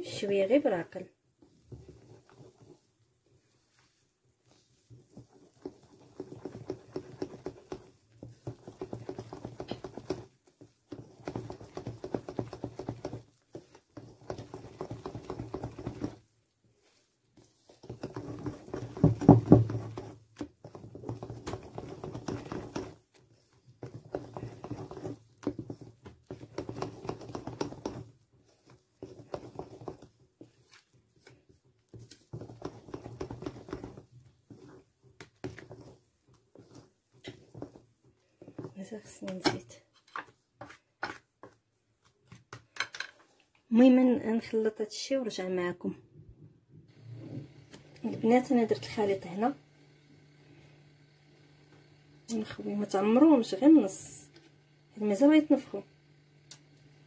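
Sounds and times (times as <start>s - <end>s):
whisk clattering against bowl: 5.1s - 16.3s, 17.7s - 30.8s, 31.9s - 37.8s.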